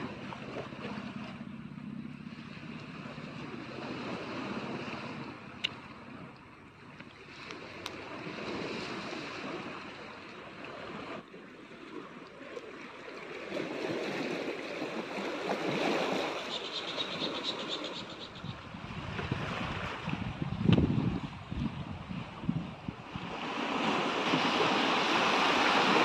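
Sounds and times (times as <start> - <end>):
surf washing over pebbly shore: 22.2 - 26.0.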